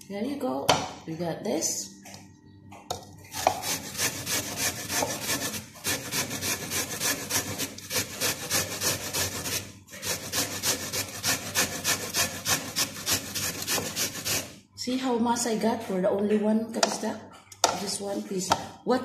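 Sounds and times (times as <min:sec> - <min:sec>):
sweet potato grating on metal grater: 0:03.3 - 0:14.6.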